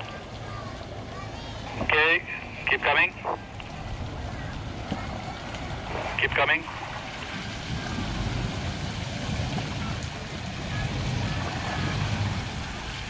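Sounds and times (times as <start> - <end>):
suv engine rumbling: 0.0 - 13.0.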